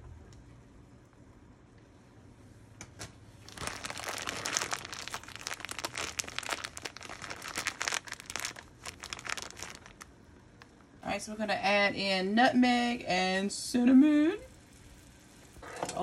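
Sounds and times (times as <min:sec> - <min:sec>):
plastic bag crinkling: 0:03.4 - 0:10.8.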